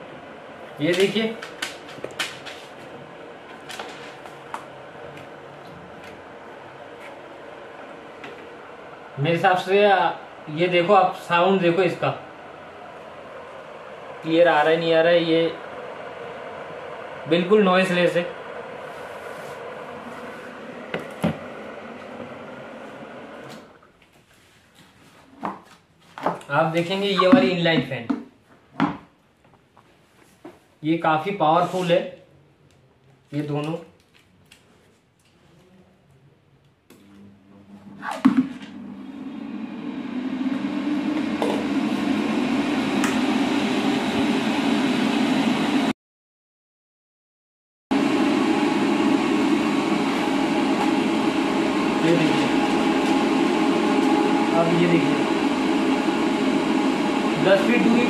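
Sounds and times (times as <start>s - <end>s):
exhaust fan whirring: 0.0s - 23.8s, 37.5s - 45.9s, 47.9s - 58.0s.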